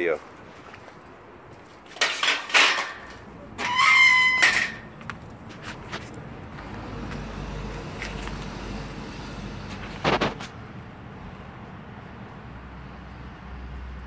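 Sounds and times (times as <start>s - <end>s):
road traffic rumble: 0.0s - 14.0s
metal gate clanking: 2.0s - 5.1s
hinges squealing: 2.0s - 10.6s.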